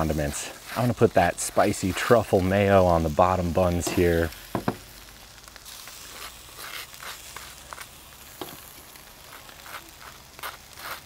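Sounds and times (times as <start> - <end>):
burgers sizzling on grill: 0.0 - 11.0
knife scraping on buns: 0.3 - 2.3, 5.9 - 7.9, 9.2 - 11.0.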